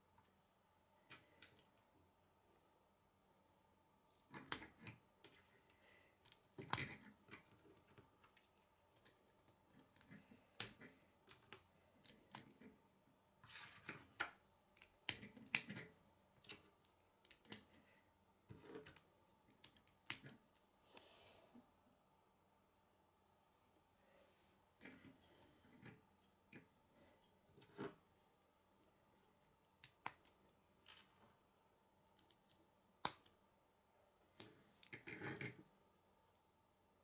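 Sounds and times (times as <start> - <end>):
plastic pieces clicking together: 17.2 - 17.8.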